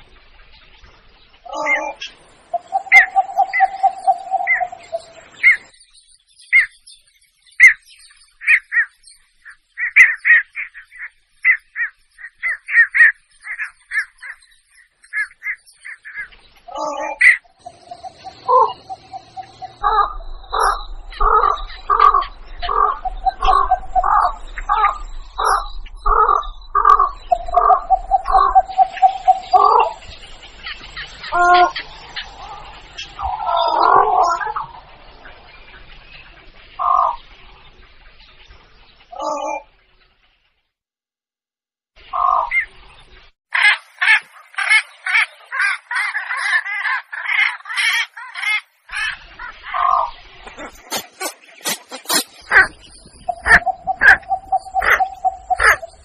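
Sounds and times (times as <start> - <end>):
recorded heron calls: 1.5 - 5.6, 15.2 - 30.0, 31.3 - 34.7, 43.6 - 56.0.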